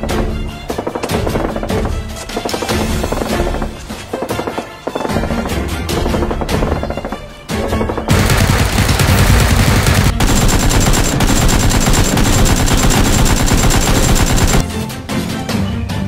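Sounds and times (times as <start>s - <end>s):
automatic gunfire: 6.0s - 14.6s.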